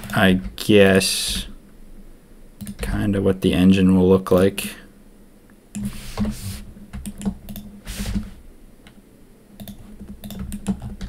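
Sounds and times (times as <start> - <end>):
soft hisses: 5.8 - 6.8
keyboard keys clicking: 9.6 - 11.0.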